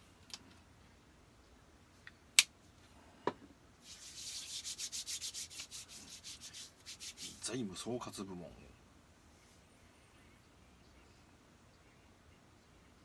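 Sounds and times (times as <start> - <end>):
scratchy rubbing strokes: 3.8 - 7.6.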